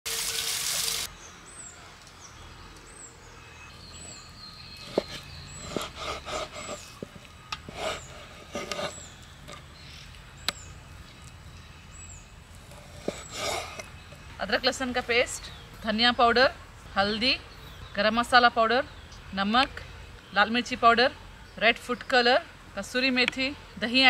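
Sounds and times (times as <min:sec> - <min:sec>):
knife slicing meat: 0:05.0 - 0:06.9.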